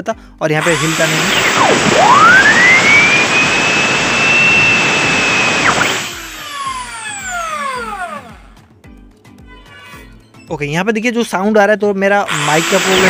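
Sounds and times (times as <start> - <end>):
drill motor whine: 0.6 - 8.6, 12.3 - 13.0.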